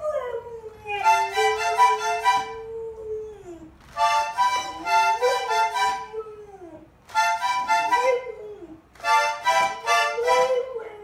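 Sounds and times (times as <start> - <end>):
accordion chords: 1.0 - 2.7, 3.9 - 6.2, 7.0 - 8.4, 9.0 - 10.8.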